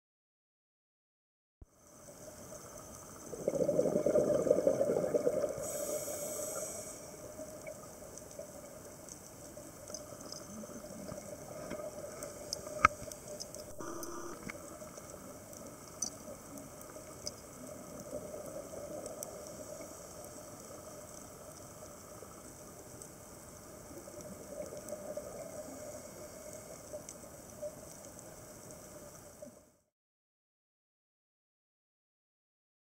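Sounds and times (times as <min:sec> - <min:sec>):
diver's bubbles gurgling: 0:03.2 - 0:05.7
steady hiss: 0:05.4 - 0:29.6.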